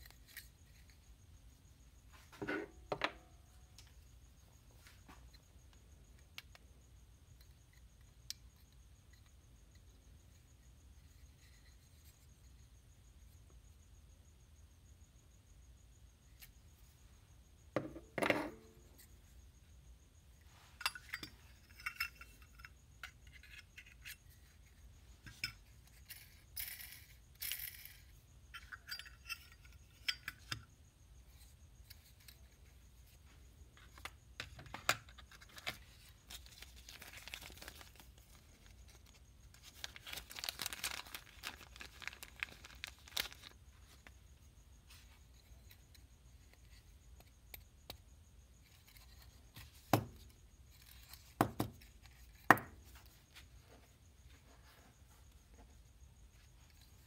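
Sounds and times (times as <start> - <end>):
plastic bag rustling: 39.6 - 43.5.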